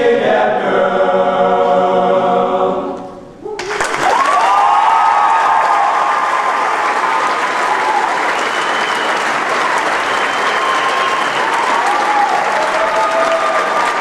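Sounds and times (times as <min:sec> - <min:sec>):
large audience applauding: 0:03.6 - 0:14.0.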